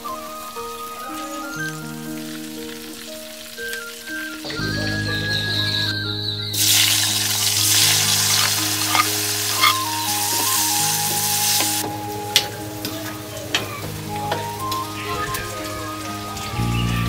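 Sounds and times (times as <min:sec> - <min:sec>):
nuts sizzling in hot oil: 0:06.6 - 0:17.0.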